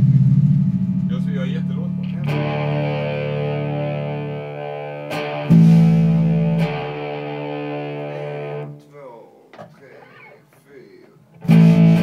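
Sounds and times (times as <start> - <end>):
distorted electric guitar chords: 0.0 - 8.9, 11.3 - 12.0.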